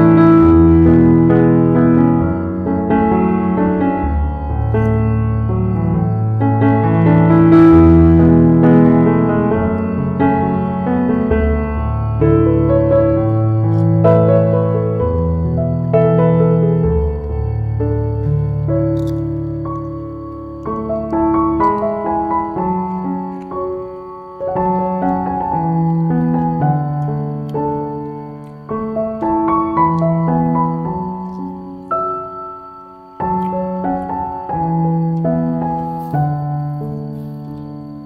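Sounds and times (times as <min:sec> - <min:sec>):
slow solo piano music: 0:00.0 - 0:38.0.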